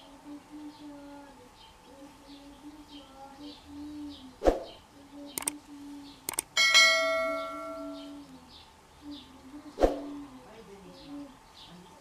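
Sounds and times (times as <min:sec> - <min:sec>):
quick double clicks: 0:05.4 - 0:05.6, 0:06.3 - 0:06.5
notification bell ringing: 0:06.6 - 0:08.1.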